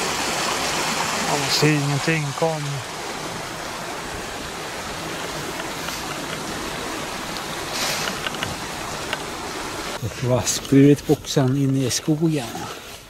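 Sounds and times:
brook water rushing: 0:00.0 - 0:13.0.

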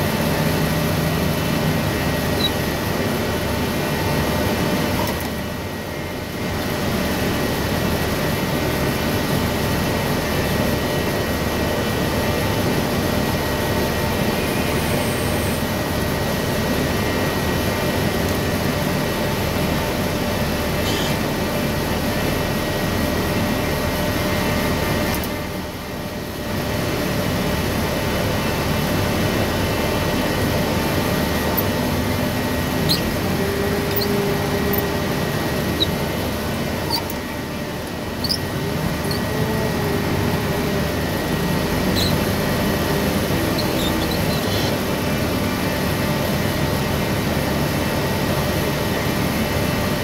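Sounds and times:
forklift diesel engine running: 0:00.0 - 0:50.0
short high squeaks: 0:02.2 - 0:02.7, 0:20.8 - 0:21.2, 0:31.4 - 0:31.9, 0:32.7 - 0:37.4, 0:38.2 - 0:39.9, 0:41.9 - 0:42.4, 0:43.3 - 0:44.8
humming tone: 0:30.2 - 0:44.7.

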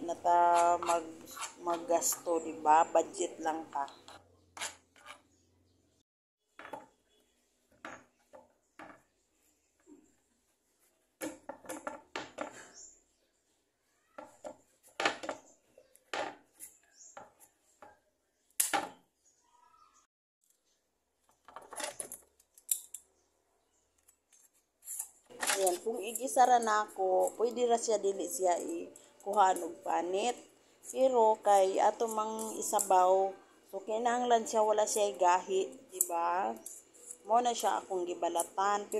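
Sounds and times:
peeler scraping squash rind: 0:00.4 - 0:02.4, 0:35.9 - 0:37.6.

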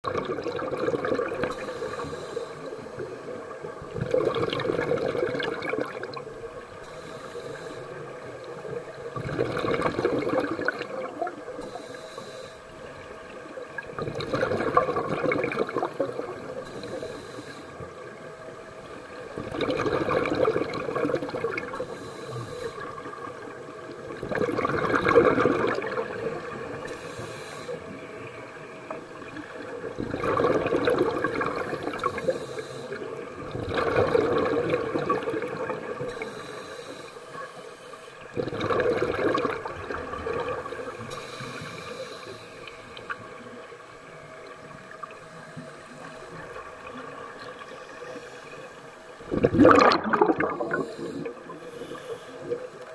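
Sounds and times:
exhaled bubbles rushing: 0:00.0 - 0:01.7, 0:03.8 - 0:06.6, 0:08.6 - 0:11.6, 0:13.8 - 0:16.7, 0:18.9 - 0:21.8, 0:22.8 - 0:26.9, 0:28.9 - 0:32.3, 0:33.2 - 0:36.1, 0:38.2 - 0:41.0, 0:49.2 - 0:51.6
regulator hissing inhale: 0:01.5 - 0:03.2, 0:06.8 - 0:08.6, 0:11.6 - 0:12.8, 0:16.6 - 0:18.0, 0:21.8 - 0:23.1, 0:26.8 - 0:28.0, 0:31.7 - 0:33.2, 0:36.0 - 0:38.2, 0:40.8 - 0:43.2, 0:47.9 - 0:48.9, 0:50.6 - 0:52.8.

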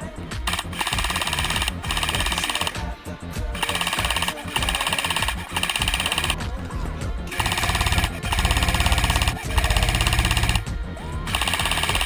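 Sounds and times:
airsoft rifle firing bursts: 0:00.4 - 0:02.9, 0:03.5 - 0:06.4, 0:07.3 - 0:10.7, 0:11.3 - 0:12.0.

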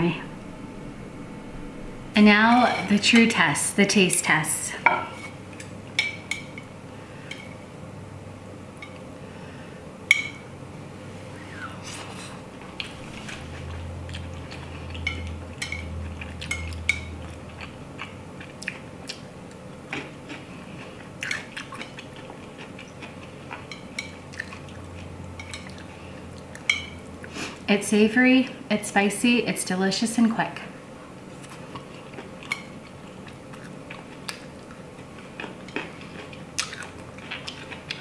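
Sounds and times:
wet eating sounds: 0:11.7 - 0:27.6, 0:31.3 - 0:38.0.

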